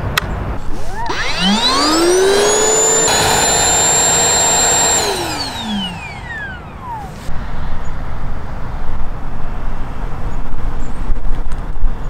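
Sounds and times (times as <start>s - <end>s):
dust extractor motor whine: 0.8s - 7.3s.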